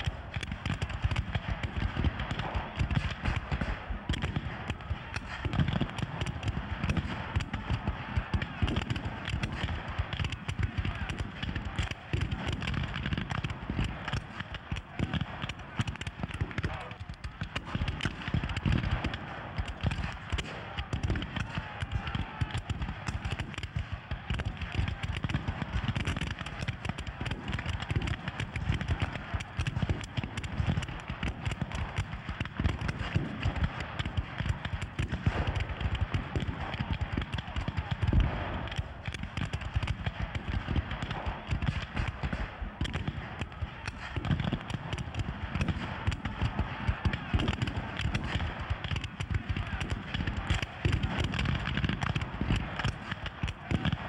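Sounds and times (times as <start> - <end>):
muskets firing: 0.0 - 54.0.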